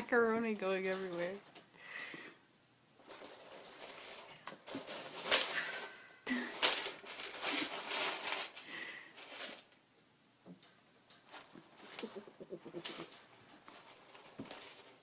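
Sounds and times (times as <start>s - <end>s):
dry macaroni rattling: 3.0s - 8.6s, 10.6s - 15.0s.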